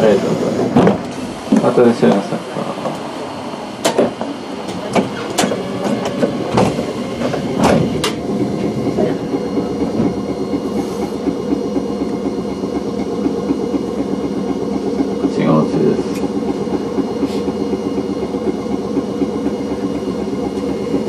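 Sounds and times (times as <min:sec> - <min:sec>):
streetcar wheels and motors rumbling: 0:00.0 - 0:21.0
sharp clicks and knocks: 0:03.8 - 0:08.2.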